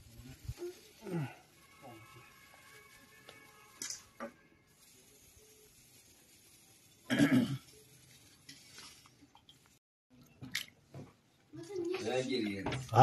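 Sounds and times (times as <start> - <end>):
person coughing: 7.1 - 7.6.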